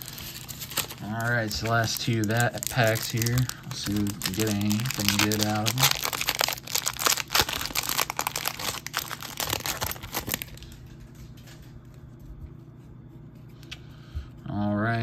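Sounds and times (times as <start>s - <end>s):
foil wrapper tearing and crinkling: 0.0s - 10.8s.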